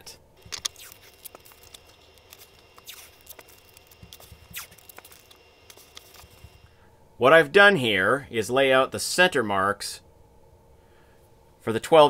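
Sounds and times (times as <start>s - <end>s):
tape ripping: 0.4s - 6.6s.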